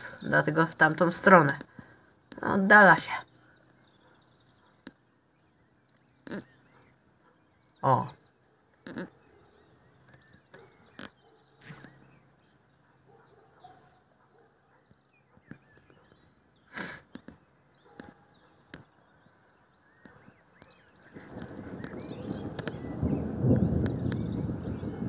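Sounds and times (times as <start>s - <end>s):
small birds chirping: 0.0s - 25.0s
sharp clicks: 4.8s - 5.0s, 5.9s - 6.5s, 8.8s - 9.2s, 10.0s - 12.0s, 16.8s - 18.9s, 20.0s - 22.8s.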